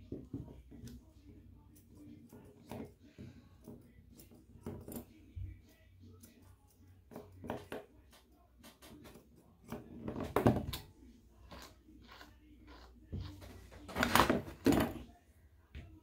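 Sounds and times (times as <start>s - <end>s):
scissors snipping fur: 1.7s - 3.0s, 3.6s - 7.8s.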